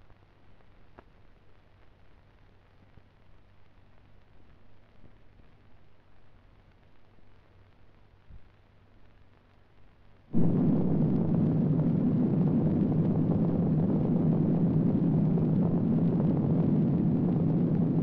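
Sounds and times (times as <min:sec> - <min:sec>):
rumbling explosion blast: 0:10.3 - 0:18.0.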